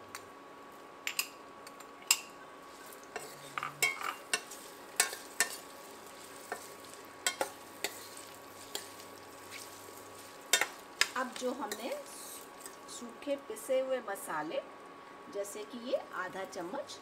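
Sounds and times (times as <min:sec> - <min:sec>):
oil sizzling: 0:00.6 - 0:13.6
metal spoon clinking in a pan: 0:03.1 - 0:05.7, 0:06.4 - 0:09.0, 0:10.5 - 0:12.0.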